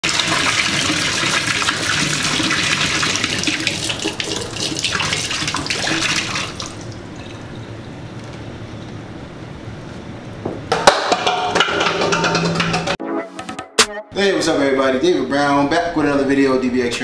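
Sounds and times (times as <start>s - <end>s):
water pouring into sink: 0.0s - 7.6s.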